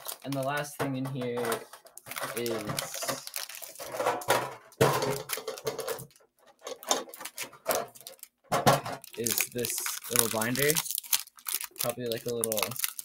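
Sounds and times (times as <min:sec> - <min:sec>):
metal tin knocking and clattering: 0:00.8 - 0:09.2.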